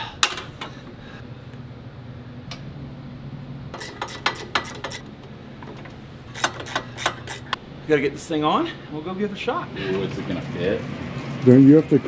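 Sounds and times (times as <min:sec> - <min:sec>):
steady low hum: 0:00.0 - 0:12.0
metal plates clicking: 0:03.8 - 0:07.6.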